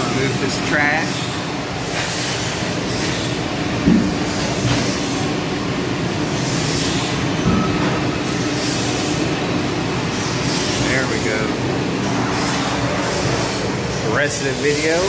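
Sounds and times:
constant hum: 0.0s - 15.0s.

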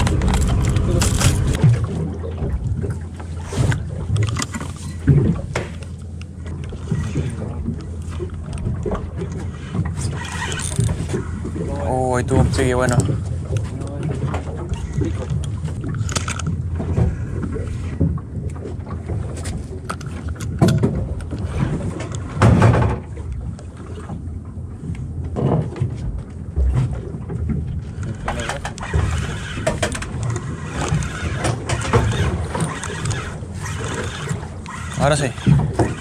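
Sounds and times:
fishing reel cranking: 0.0s - 1.6s, 10.0s - 11.2s, 28.0s - 36.0s
wind and water rumble: 0.0s - 36.0s.

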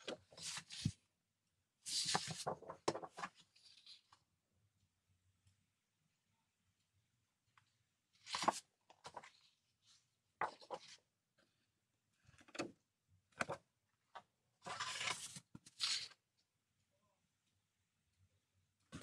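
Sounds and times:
paper rustling: 0.0s - 1.0s, 1.9s - 4.2s, 8.2s - 9.4s, 14.6s - 16.1s.

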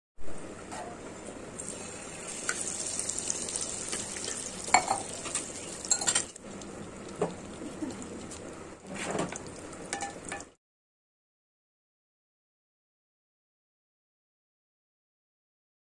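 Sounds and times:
oil sizzling in a pan: 1.5s - 8.7s, 9.3s - 10.5s.

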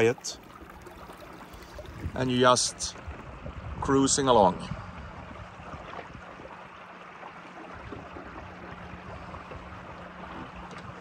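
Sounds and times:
water lapping against boat hull: 0.0s - 11.0s.

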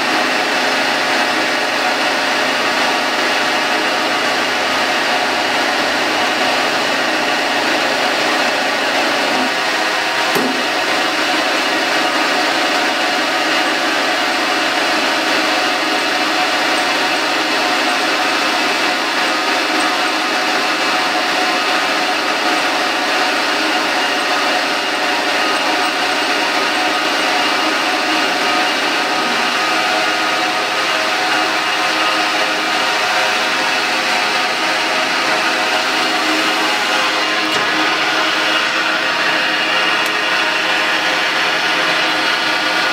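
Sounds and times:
grinder machine hum and whine: 0.0s - 42.9s.

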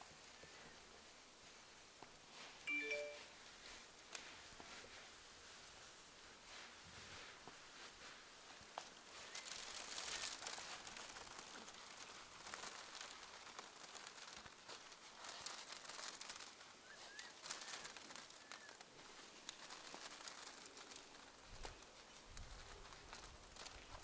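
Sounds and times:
tea leaves rustling: 0.0s - 24.0s
faint bird chirps: 16.8s - 18.8s.

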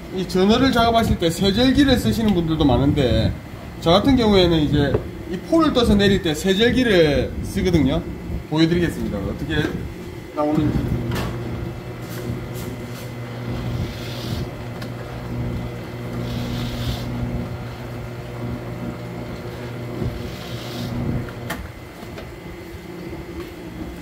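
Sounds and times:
slicing machine motor hum: 10.5s - 23.8s.

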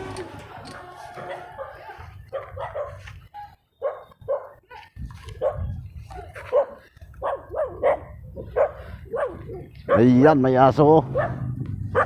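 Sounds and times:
dog barking: 1.2s - 4.8s, 5.4s - 10.2s, 11.1s - 12.0s.

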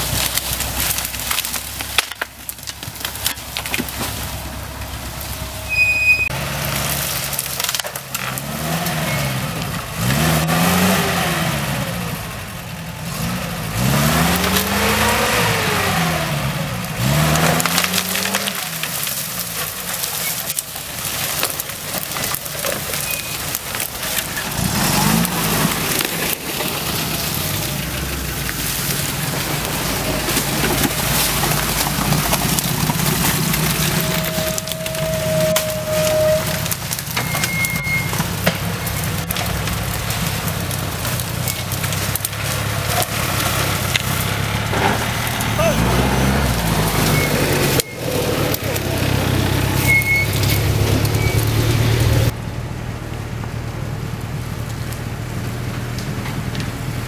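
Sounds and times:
twigs and branches snapping: 0.0s - 4.4s, 6.6s - 9.0s, 14.2s - 15.9s, 16.8s - 51.5s
off-road vehicle engine revving: 0.0s - 52.8s.

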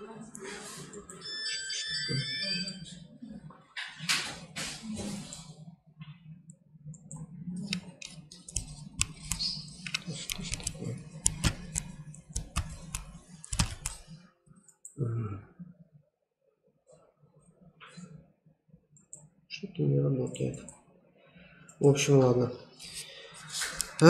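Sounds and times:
keyboard and mouse clicks: 6.5s - 15.0s, 23.7s - 24.0s.

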